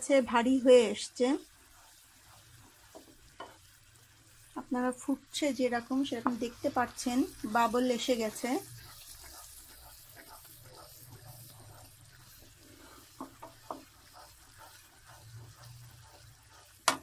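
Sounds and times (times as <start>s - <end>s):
syrup bubbling in a pot: 0.0s - 17.0s
spatula scraping pot bottom: 1.0s - 3.8s, 5.7s - 17.0s
spatula knocking on pot: 2.9s - 3.6s, 13.1s - 15.6s.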